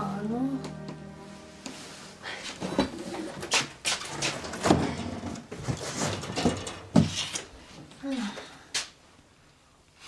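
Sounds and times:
boxes knocking and scraping: 2.6 - 7.5.

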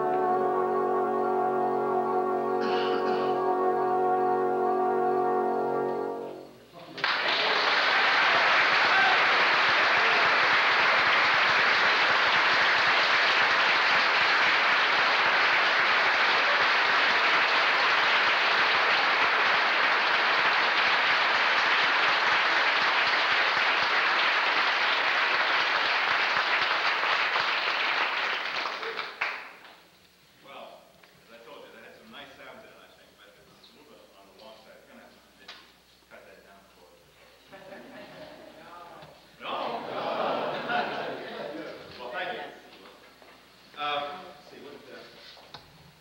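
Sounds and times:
crowd applauding: 6.9 - 29.8.

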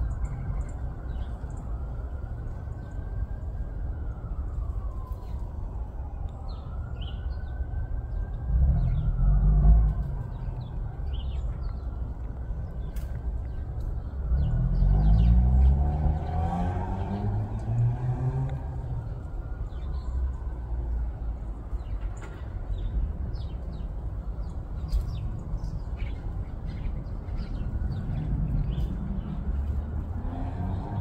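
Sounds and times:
low traffic rumble: 0.0 - 31.0
small birds chirping: 6.4 - 16.3, 21.7 - 31.0
vehicle passing by: 8.3 - 11.4, 14.2 - 20.5, 27.5 - 31.0.

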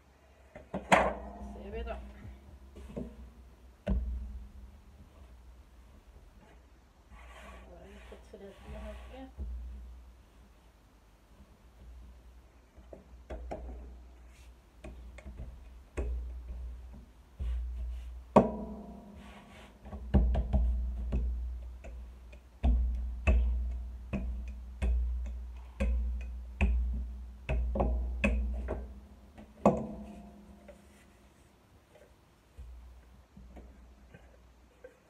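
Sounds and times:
rolling pin knocking and rumbling: 14.8 - 19.2, 19.8 - 30.7.

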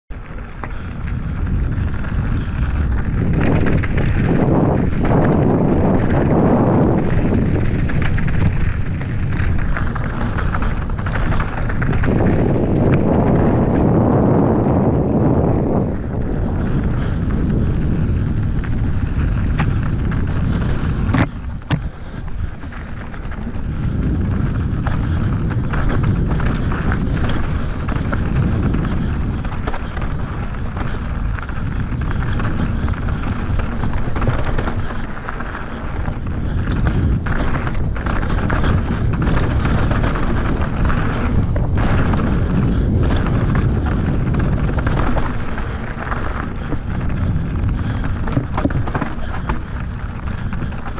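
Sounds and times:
bike tyres rolling on dirt: 0.1 - 50.9
wind buffeting microphone: 0.1 - 50.9
bike knocking over bumps: 23.4 - 50.9.

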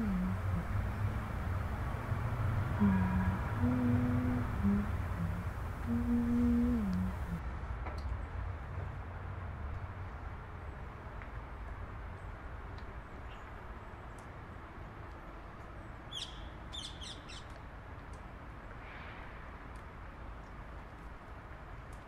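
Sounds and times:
low outdoor rumble: 0.0 - 10.3
bird chirping: 16.1 - 17.5.

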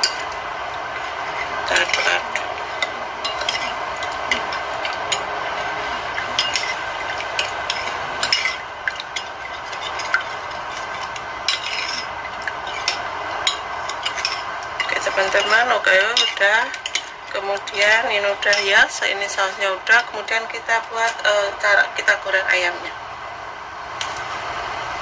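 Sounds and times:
spoon stirring liquid: 0.0 - 17.8
spoon clinking on ceramic bowl: 6.4 - 6.8.

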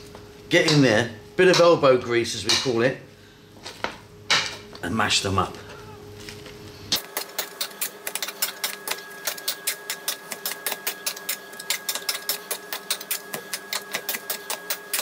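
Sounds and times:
faint steady hum: 0.0 - 7.0.

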